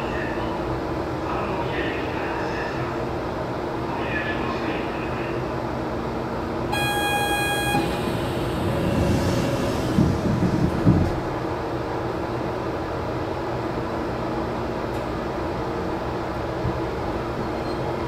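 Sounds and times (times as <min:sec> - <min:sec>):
train humming at platform: 0:00.0 - 0:18.0
electronic beep: 0:06.8 - 0:09.0.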